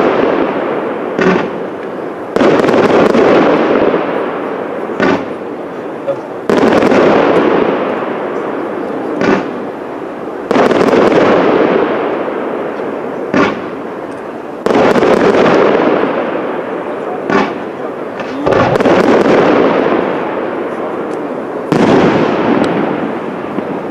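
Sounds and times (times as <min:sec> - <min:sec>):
firework shells bursting: 0:00.0 - 0:08.6, 0:09.2 - 0:09.8, 0:10.4 - 0:23.9
sharp firework pop: 0:01.2 - 0:01.6, 0:13.3 - 0:13.6.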